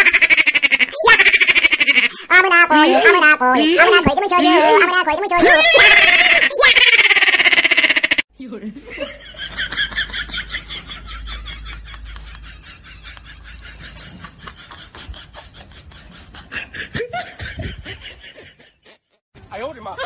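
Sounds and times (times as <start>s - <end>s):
laughter: 0.0s - 2.2s, 5.4s - 8.2s, 8.8s - 19.2s.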